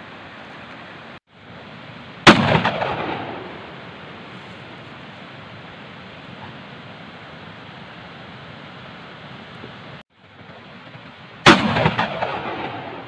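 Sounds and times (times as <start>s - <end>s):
shotgun blast with echo: 2.2s - 3.8s, 11.4s - 13.0s.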